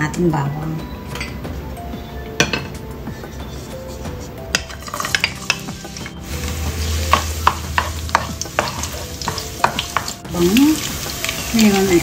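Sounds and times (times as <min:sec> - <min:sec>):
spatula scraping a wok: 0:03.3 - 0:10.1
garlic sizzling in oil: 0:04.7 - 0:12.0.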